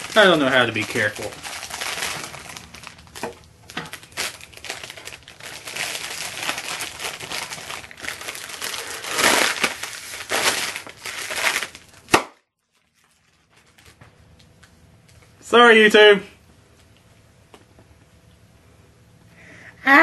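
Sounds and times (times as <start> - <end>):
plastic wrapping crinkling: 0.0 - 15.4
plastic bag bursting pop: 6.2 - 12.4.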